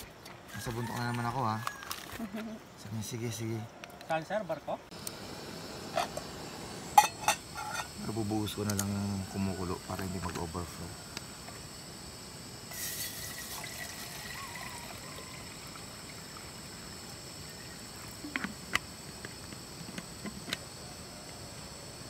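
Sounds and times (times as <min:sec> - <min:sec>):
water pouring into a metal pot: 0:12.7 - 0:16.8.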